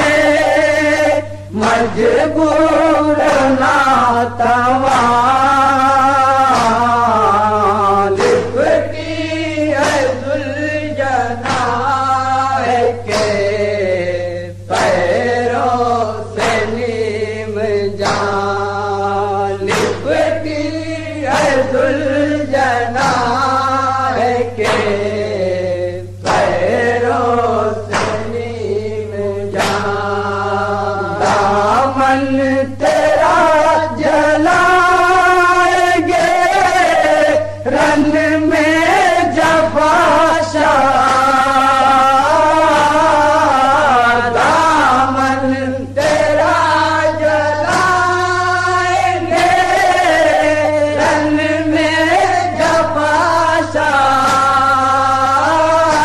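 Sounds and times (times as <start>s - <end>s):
men chanting in chorus: 0.0s - 56.0s
steady low hum: 0.0s - 56.0s
regular sharp strikes: 19.6s - 23.7s, 29.5s - 30.4s.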